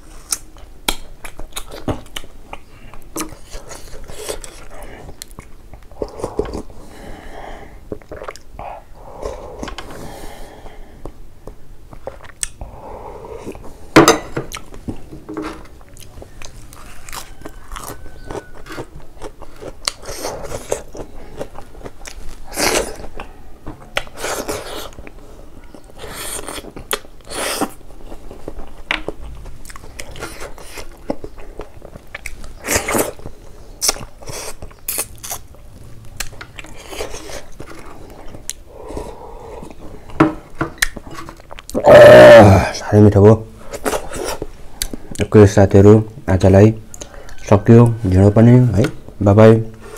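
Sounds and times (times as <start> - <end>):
person chewing with wet smacking: 0.2 - 6.8, 7.9 - 8.6, 11.0 - 12.7, 14.5 - 41.8, 43.7 - 45.4.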